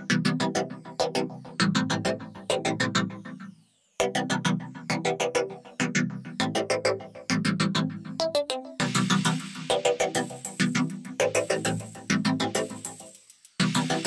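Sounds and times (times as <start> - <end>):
electronic music: 6.4 - 14.0.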